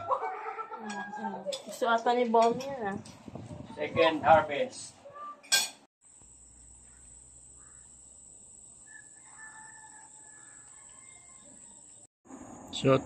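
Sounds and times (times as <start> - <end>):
rooster crowing faintly: 8.8 - 12.1.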